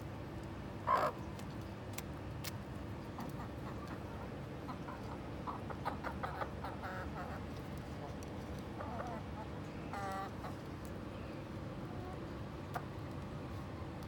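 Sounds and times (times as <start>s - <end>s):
chickens clucking: 3.1s - 10.7s.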